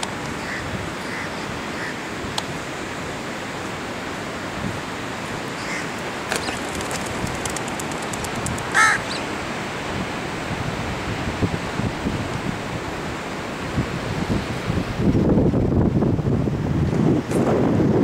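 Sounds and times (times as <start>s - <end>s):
wind: 0.0s - 18.0s
crow cawing: 0.4s - 2.0s, 5.6s - 5.9s, 8.7s - 9.2s.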